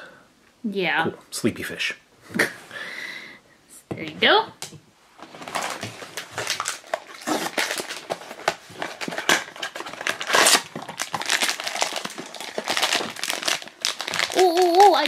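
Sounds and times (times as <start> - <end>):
foil bag crinkling: 5.2 - 15.0.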